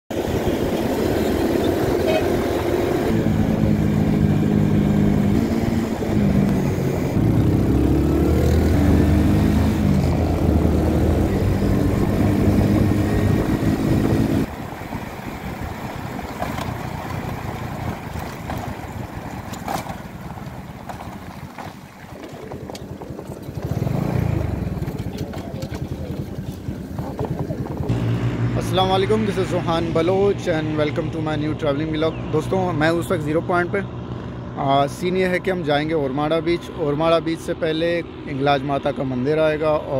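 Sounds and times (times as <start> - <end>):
motorcycle engine running: 0.1 - 39.9
passing traffic: 0.1 - 39.9
road noise: 0.1 - 39.9.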